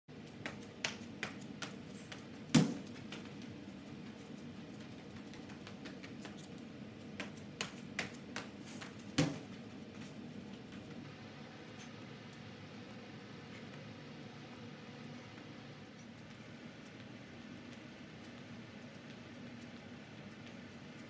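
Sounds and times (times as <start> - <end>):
low room hum: 0.1 - 21.0
sneaker footsteps on rubber floor: 0.3 - 11.0.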